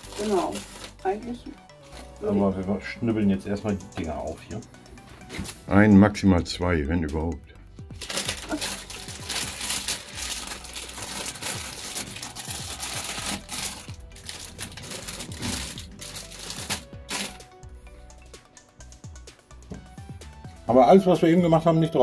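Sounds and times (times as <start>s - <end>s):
plastic bag crinkling: 0.0s - 1.3s, 8.0s - 17.5s
background music: 0.0s - 22.0s.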